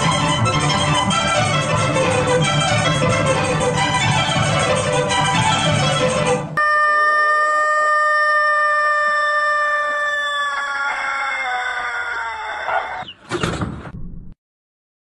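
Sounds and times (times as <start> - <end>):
rooster crowing: 6.6 - 13.1.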